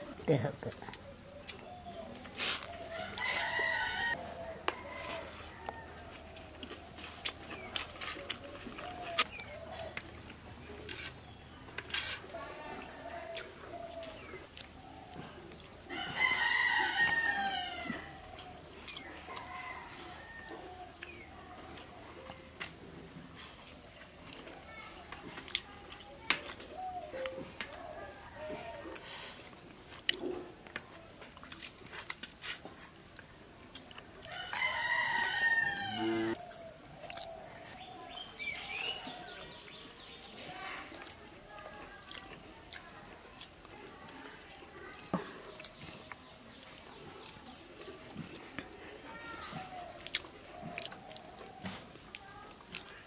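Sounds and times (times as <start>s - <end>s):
rooster crowing: 2.9s - 6.0s, 15.9s - 18.2s, 34.4s - 36.4s.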